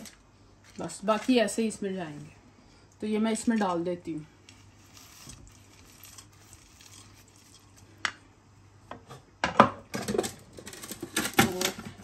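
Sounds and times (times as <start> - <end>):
wooden spoon stirring dry seeds: 0.0 - 2.4, 3.4 - 8.1
seeds scraped into a pan: 4.4 - 8.0.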